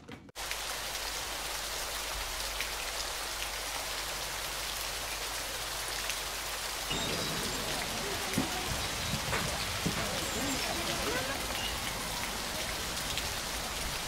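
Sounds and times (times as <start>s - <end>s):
rain hissing: 0.4s - 14.0s.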